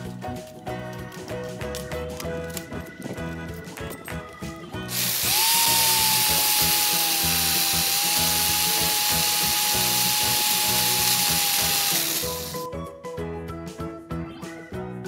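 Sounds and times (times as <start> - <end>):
background music: 0.0 - 15.0
electric drill motor whine: 4.9 - 12.6.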